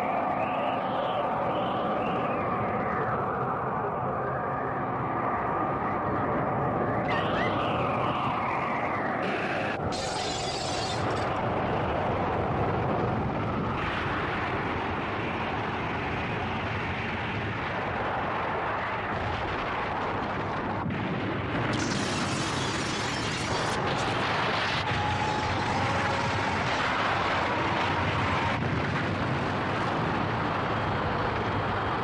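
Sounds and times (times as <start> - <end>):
explosion blast rumble: 19.1 - 32.0.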